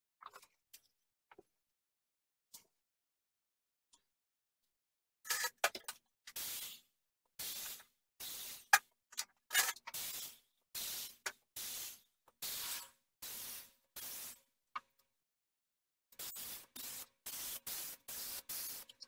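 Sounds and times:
spray gun hissing: 6.4s - 6.8s, 7.4s - 8.8s, 9.9s - 14.4s, 16.2s - 19.0s.

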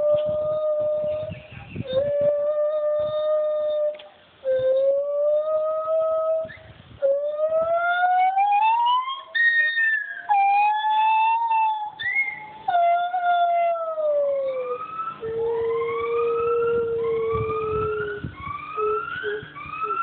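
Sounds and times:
gibbons singing: 4.8s - 20.0s.

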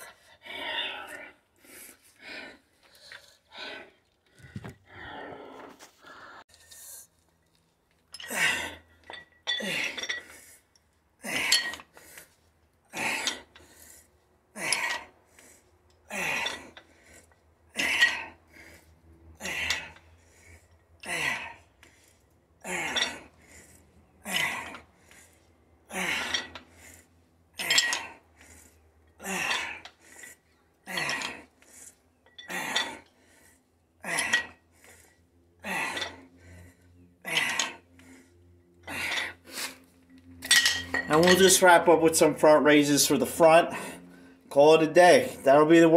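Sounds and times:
forceful breaths: 0.0s - 7.2s, 8.2s - 44.5s
dumbbell plates clinking: 8.0s - 10.5s, 11.3s - 12.0s, 16.1s - 16.9s, 17.8s - 18.4s, 19.4s - 21.5s, 22.7s - 23.5s, 25.9s - 26.8s, 27.6s - 28.2s, 30.9s - 31.5s, 32.2s - 33.2s, 34.0s - 34.6s, 35.6s - 36.3s, 37.2s - 37.8s, 40.4s - 43.1s.

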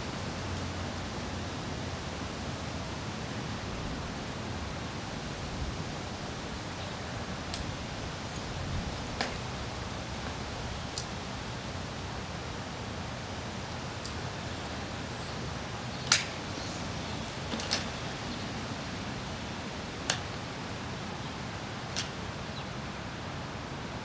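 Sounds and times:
steady background hiss: 0.0s - 24.0s
metallic clicks and snaps: 16.0s - 16.4s.

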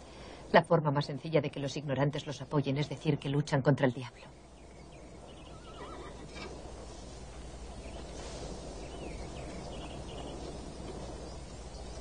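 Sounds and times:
low background rumble: 0.0s - 12.0s
faint bird chirps: 4.3s - 6.5s.

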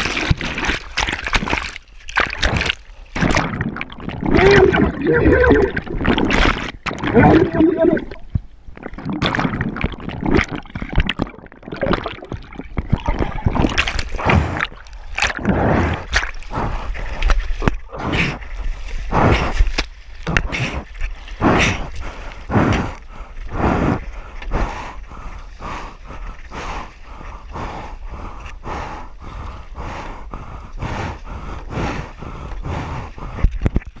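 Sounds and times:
paddle strokes splashing water: 0.0s - 24.2s.

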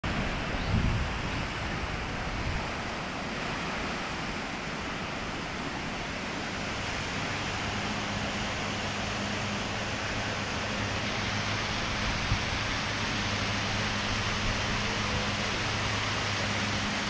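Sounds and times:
river and waterfall rushing: 0.0s - 17.0s
wind buffeting microphone: 0.0s - 17.0s.

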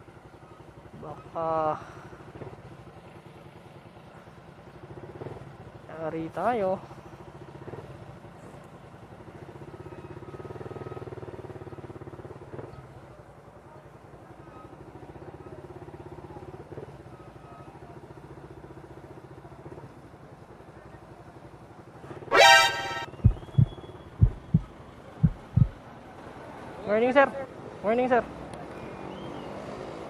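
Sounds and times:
motorcycle engine rumbling: 22.3s - 25.9s.

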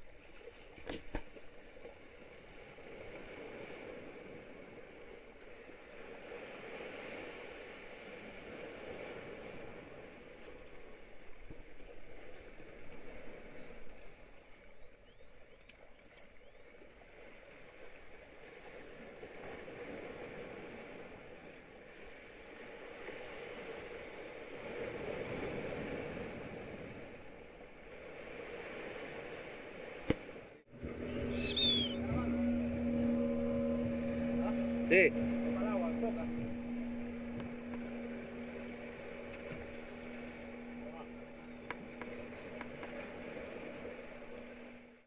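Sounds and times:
steady low hum: 30.7s - 45.0s.

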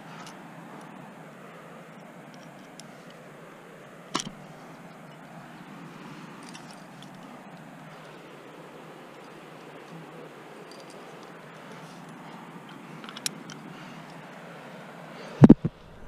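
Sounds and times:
steady low hiss: 0.0s - 16.0s
carabiner gate snapping: 4.2s - 4.4s.

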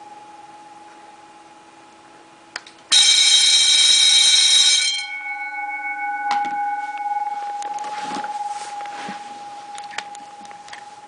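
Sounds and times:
alarm bell ringing: 2.9s - 11.0s.

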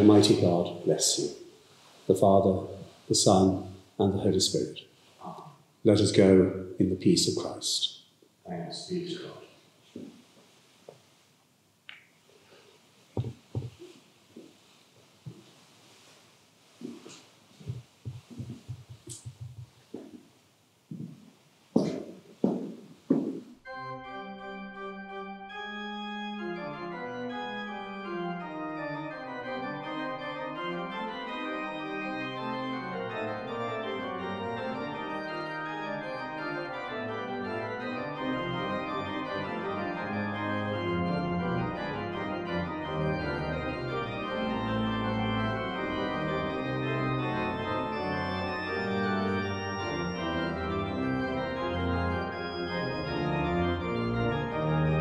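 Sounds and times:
organ playing slow chords: 0.0s - 1.4s, 2.1s - 4.8s, 23.6s - 55.0s.

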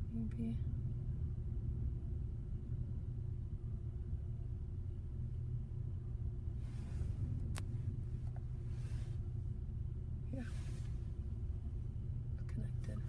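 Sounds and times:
car cabin rumble: 6.4s - 13.0s
faint rustles: 6.5s - 9.6s, 10.3s - 12.0s.

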